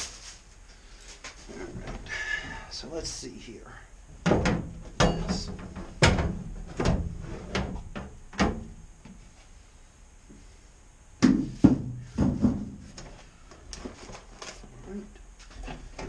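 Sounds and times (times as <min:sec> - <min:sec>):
metal parts knocking in steel cabinet: 0:04.3 - 0:08.6.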